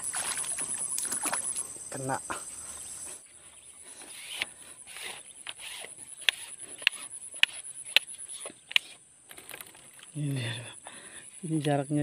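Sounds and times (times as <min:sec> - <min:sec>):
fish splashing in water: 0:00.0 - 0:01.7
swishes of water and weeds: 0:00.0 - 0:01.9
sharp clicks: 0:04.3 - 0:10.1.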